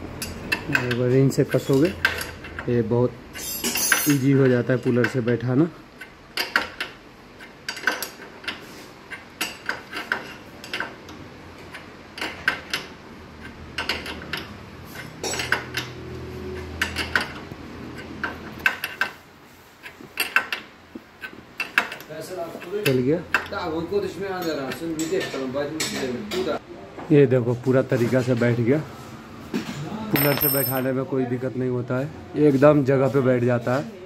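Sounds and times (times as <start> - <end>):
metal tools clicking and clinking: 3.3 - 5.4, 6.0 - 16.0, 30.1 - 30.9.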